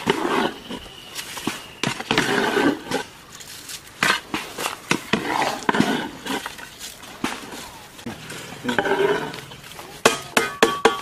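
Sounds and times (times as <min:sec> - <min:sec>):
metal ladle scraping a pot: 0:00.0 - 0:03.1, 0:08.2 - 0:09.6.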